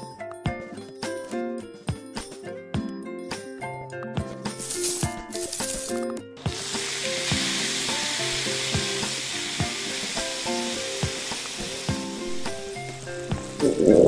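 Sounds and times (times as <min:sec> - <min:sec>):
light background music: 0:00.0 - 0:14.0
meat sizzling on hot plate: 0:06.4 - 0:13.8.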